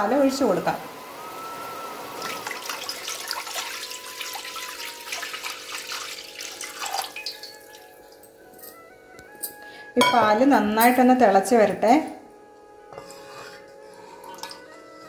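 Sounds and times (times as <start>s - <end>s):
milk pouring into pan: 2.2s - 8.1s.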